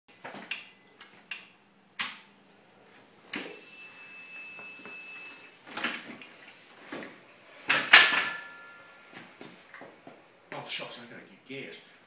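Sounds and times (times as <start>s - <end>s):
high pure electronic tone: 3.5s - 5.6s.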